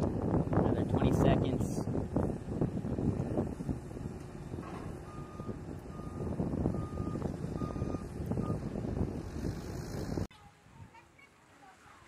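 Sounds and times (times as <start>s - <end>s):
steady low rumble: 0.0s - 10.3s
reversing alarm beeping: 5.0s - 8.7s.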